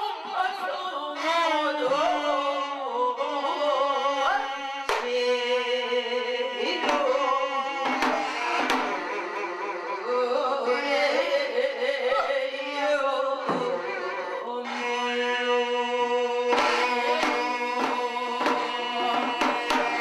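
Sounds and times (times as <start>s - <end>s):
drum strokes: 7.8s - 9.2s, 16.5s - 20.0s.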